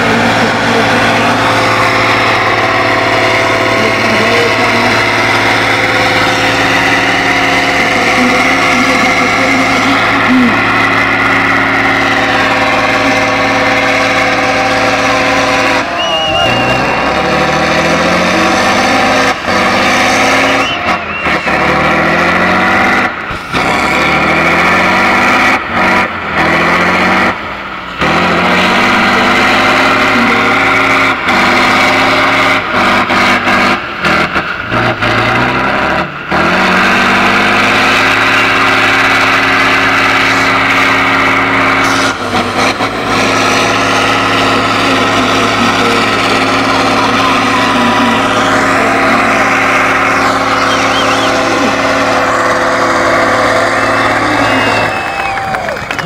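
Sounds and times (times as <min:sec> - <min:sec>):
truck engine revving: 0:00.0 - 0:56.0.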